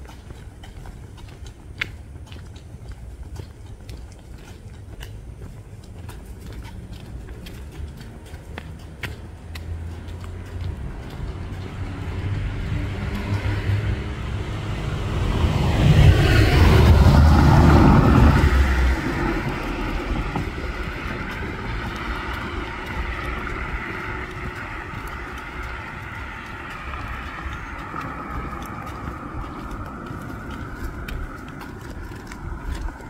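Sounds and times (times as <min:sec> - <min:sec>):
car passing by: 0:07.5 - 0:33.0.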